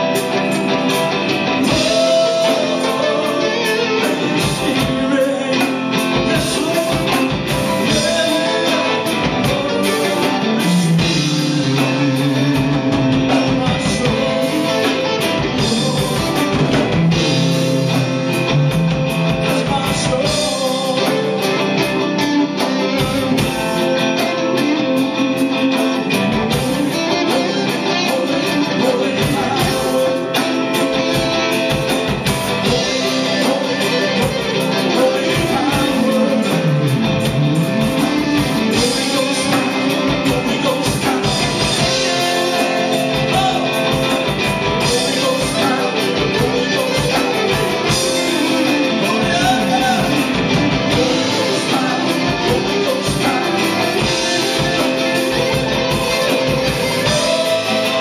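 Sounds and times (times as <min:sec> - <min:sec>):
amplified electric guitar: 0:00.0 - 0:58.0
man singing into microphone: 0:01.6 - 0:31.9, 0:32.5 - 0:58.0.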